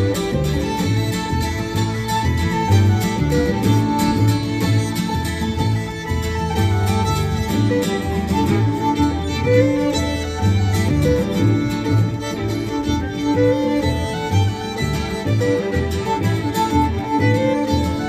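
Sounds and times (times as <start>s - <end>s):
acoustic guitar: 0.0s - 18.0s
fiddle melody: 0.0s - 18.0s
upright double bass: 0.0s - 18.0s.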